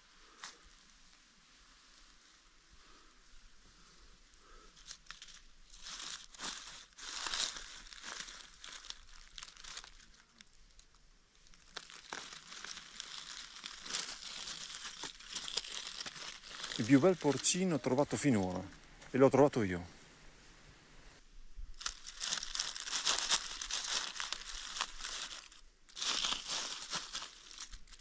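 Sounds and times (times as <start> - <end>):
dry leaves crackling and rustling: 4.5 - 18.8, 21.8 - 28.0.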